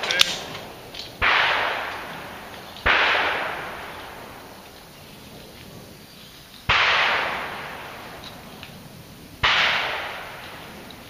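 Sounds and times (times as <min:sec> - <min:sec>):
shotgun shots with echo: 0:00.0 - 0:04.4, 0:06.7 - 0:08.2, 0:09.4 - 0:10.8.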